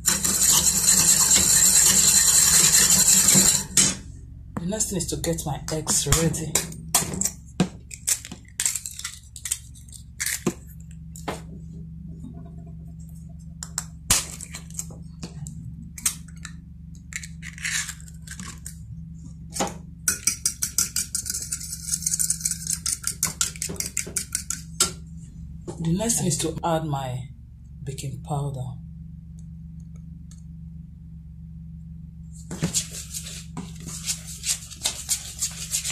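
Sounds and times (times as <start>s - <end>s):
fork tapping eggshells: 20.1s - 24.6s
fork beating eggs in saucer: 20.1s - 24.7s, 33.8s - 35.9s.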